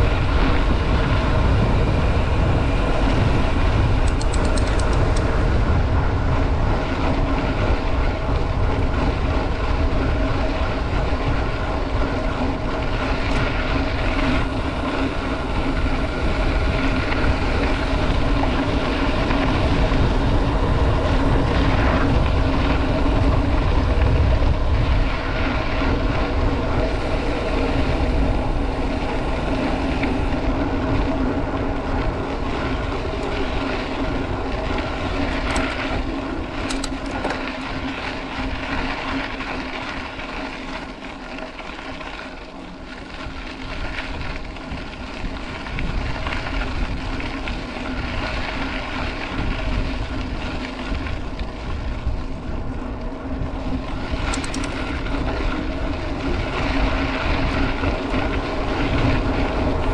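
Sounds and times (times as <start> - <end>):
bike tyres rolling on dirt: 0.0 - 59.9
wind rumbling on microphone: 0.0 - 59.9
faint clicks: 4.0 - 5.3.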